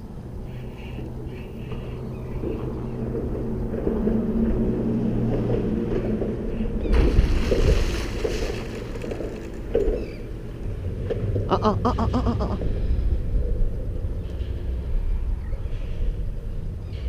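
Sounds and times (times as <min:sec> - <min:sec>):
steady low drone: 0:00.0 - 0:17.0
fish thrashing and splashing: 0:06.8 - 0:10.3.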